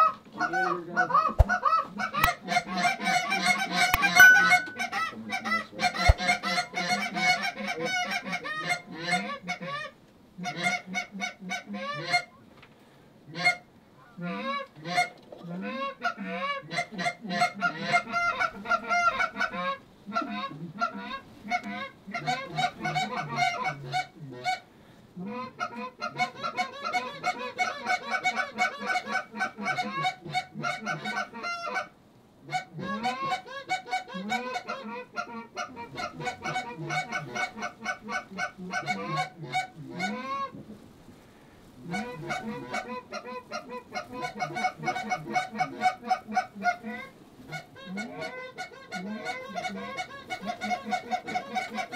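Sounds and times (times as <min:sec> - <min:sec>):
geese honking: 0:00.0 - 0:12.3, 0:32.5 - 0:40.6, 0:41.9 - 0:51.9.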